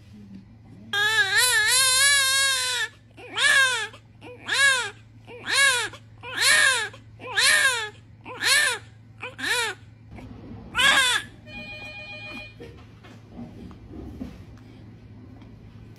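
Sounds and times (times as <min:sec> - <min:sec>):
newborn baby crying: 0:01.0 - 0:09.9, 0:10.8 - 0:11.3.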